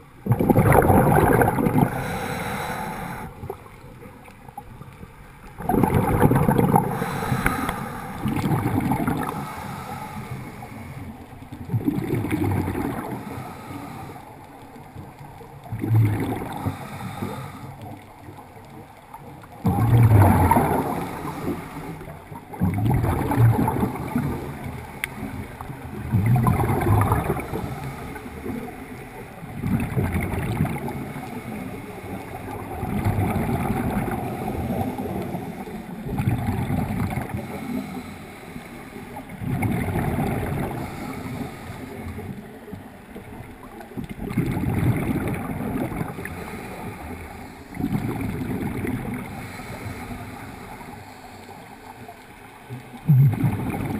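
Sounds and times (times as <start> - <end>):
diver exhaling bubbles: 0.2 - 3.7, 5.5 - 10.8, 11.6 - 14.0, 15.7 - 17.6, 19.5 - 28.8, 29.4 - 31.5, 32.4 - 38.1, 39.2 - 42.4, 44.1 - 51.0, 52.7 - 53.9
breathing through a regulator: 1.7 - 3.6, 6.6 - 11.3, 12.8 - 14.6, 16.2 - 18.1, 19.9 - 22.2, 27.0 - 29.6, 30.9 - 32.6, 37.3 - 39.2, 40.5 - 42.4, 46.1 - 48.0, 49.2 - 51.9.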